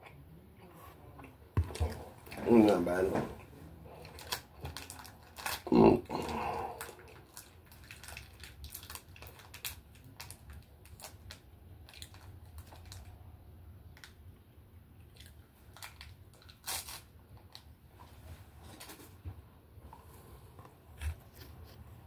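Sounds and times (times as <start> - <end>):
plastic wrapper crinkling: 4.0 - 5.7, 6.8 - 13.1, 15.7 - 17.7.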